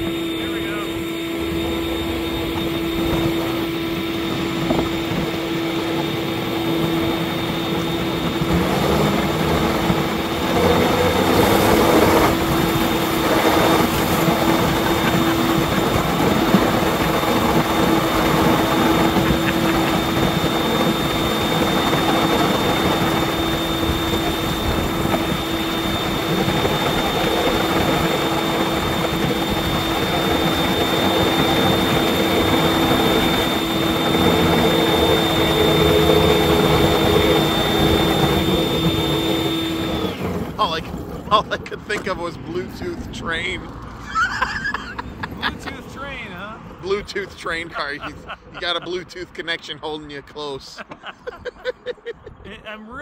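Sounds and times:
leaf blower running: 0.0 - 42.3.

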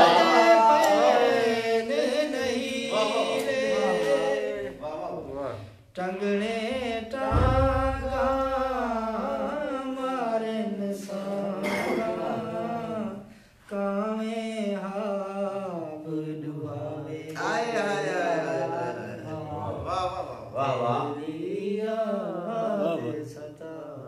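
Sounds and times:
man singing: 0.0 - 24.0
low thud: 6.8 - 9.2.

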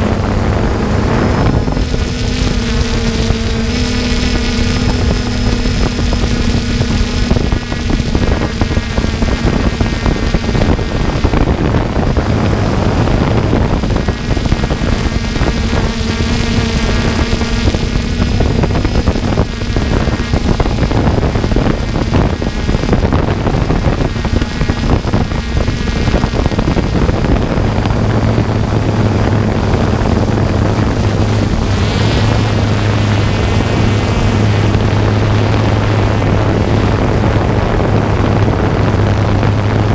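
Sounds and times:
drone propellers humming: 0.0 - 39.9
wind buffeting microphone: 0.0 - 39.9.

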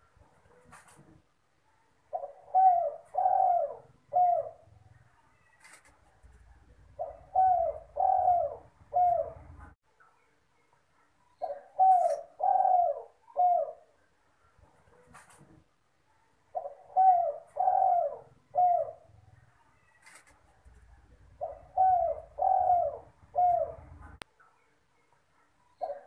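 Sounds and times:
dove cooing: 2.1 - 5.9, 6.6 - 9.8, 11.4 - 14.0, 16.5 - 24.2, 25.8 - 26.0.

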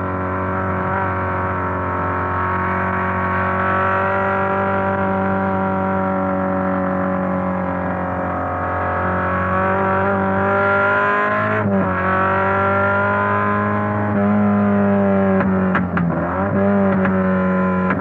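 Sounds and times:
racing car engine at high revs: 0.0 - 18.0.

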